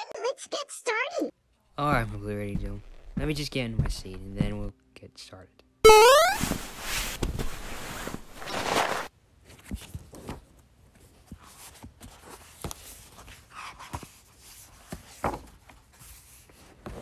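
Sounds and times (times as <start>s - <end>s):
soft footsteps: 1.8s - 4.7s.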